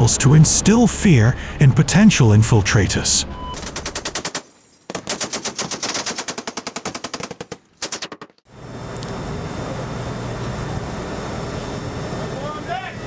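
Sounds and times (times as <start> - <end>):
machine gun firing bursts: 3.6 - 8.4.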